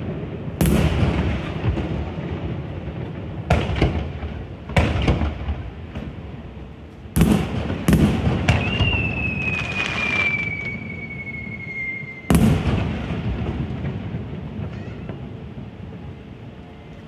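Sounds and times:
firework bangs: 0:00.0 - 0:16.2
firework whistle falling in pitch: 0:08.5 - 0:12.6.

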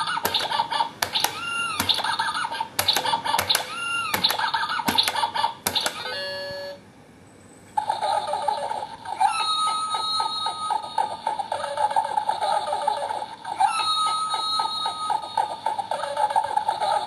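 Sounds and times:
plastic hammer tapping: 0:00.2 - 0:06.1.

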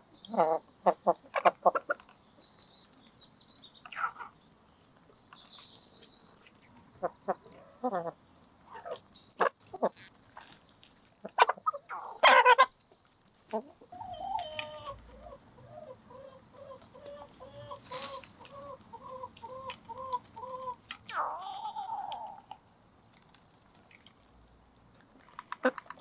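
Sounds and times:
hens clucking: 0:00.2 - 0:02.2, 0:06.8 - 0:10.1, 0:11.2 - 0:12.8, 0:13.5 - 0:22.6.

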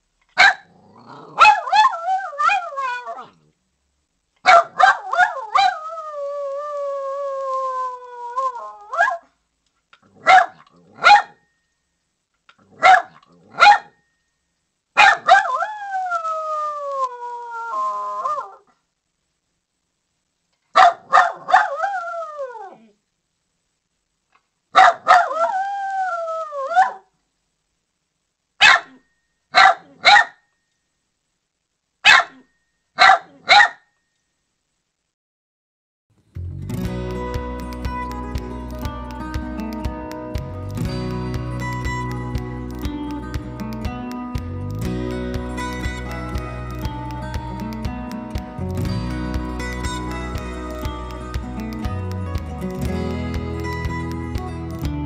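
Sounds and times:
dog barking: 0:00.4 - 0:03.3, 0:04.4 - 0:05.8, 0:08.9 - 0:09.3, 0:10.2 - 0:11.4, 0:12.8 - 0:14.0, 0:15.0 - 0:15.8, 0:20.8 - 0:22.1, 0:24.8 - 0:25.6, 0:26.6 - 0:27.1, 0:28.6 - 0:30.5, 0:32.0 - 0:33.9
dog howling: 0:01.3 - 0:03.4, 0:04.8 - 0:09.2, 0:15.2 - 0:18.6, 0:25.2 - 0:27.0.

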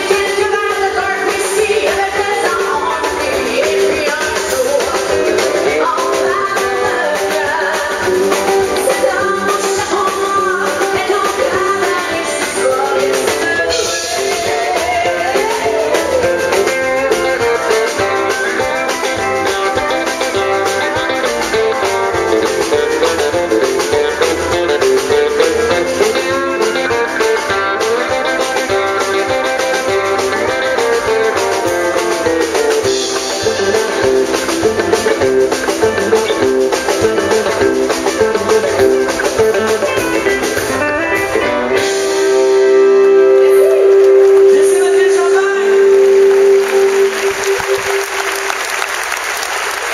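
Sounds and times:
drum kit: 0:00.0 - 0:49.9
electric guitar: 0:00.0 - 0:49.9.

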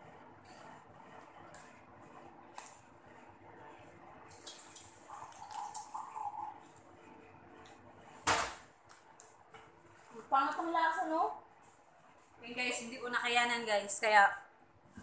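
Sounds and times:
faint running water: 0:04.3 - 0:06.7.

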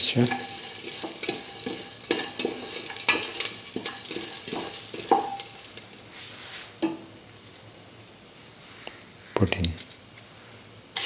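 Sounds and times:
pan ringing: 0:00.0 - 0:05.8
light sizzle of frying: 0:00.0 - 0:11.0.

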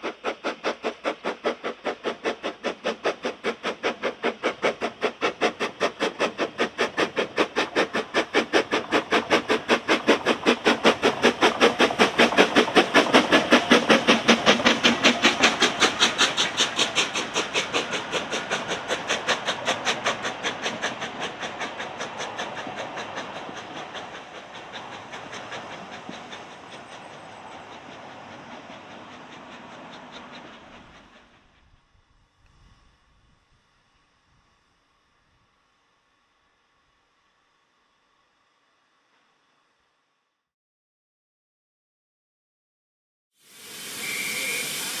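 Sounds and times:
steam locomotive exhaust beats: 0:00.0 - 0:35.5, 0:43.5 - 0:45.0.

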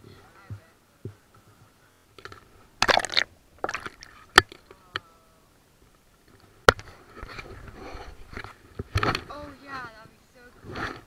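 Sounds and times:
water splashing: 0:02.2 - 0:04.8.

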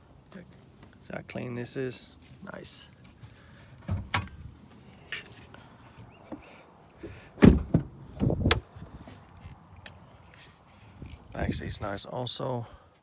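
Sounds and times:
heavy car door thunks: 0:07.4 - 0:08.7.

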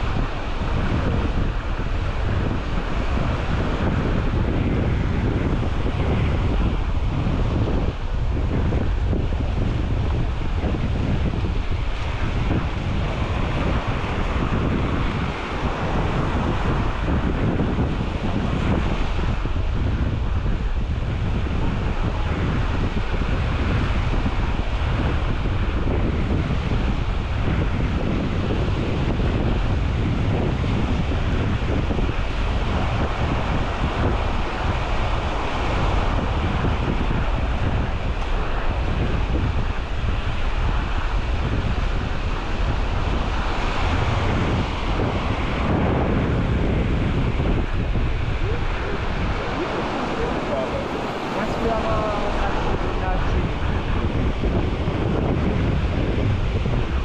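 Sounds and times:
small waves washing on sand: 0:00.0 - 0:57.0
wind buffeting microphone: 0:00.0 - 0:57.0.

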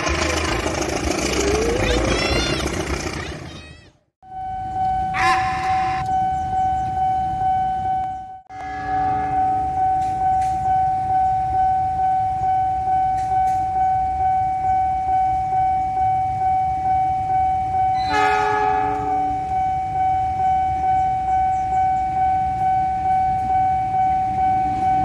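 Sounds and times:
diesel locomotive horn: 0:04.2 - 0:06.4, 0:07.8 - 0:10.6, 0:17.9 - 0:21.0
level-crossing warning bell ringing: 0:04.2 - 0:25.0.

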